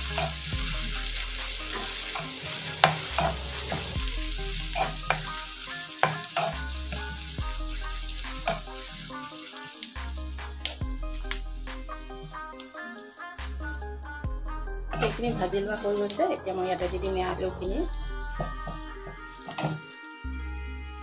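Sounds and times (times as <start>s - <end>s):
metal spatula scraping pan: 0.0s - 9.9s, 14.9s - 20.1s
onion sizzling in hot oil: 0.0s - 13.4s, 14.9s - 20.3s.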